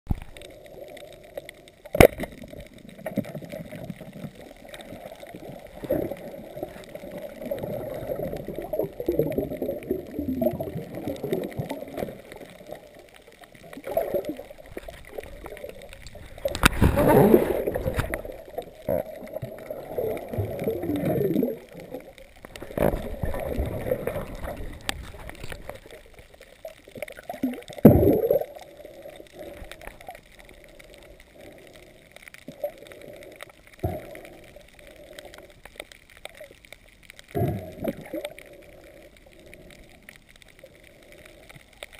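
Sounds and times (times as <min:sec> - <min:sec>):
underwater gurgle and rush: 0:00.1 - 0:41.9
rushing surge of water: 0:16.1 - 0:18.4.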